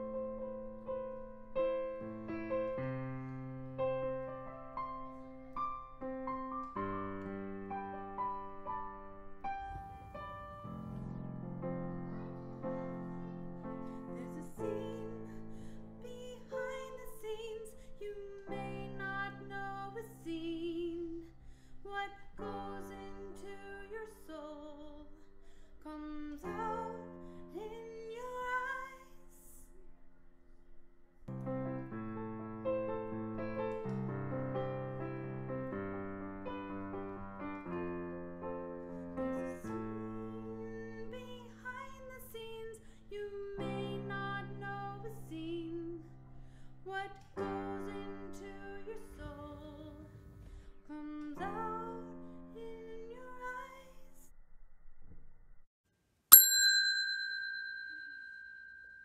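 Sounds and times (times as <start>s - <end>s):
notification bell ding: 56.3s - 59.0s.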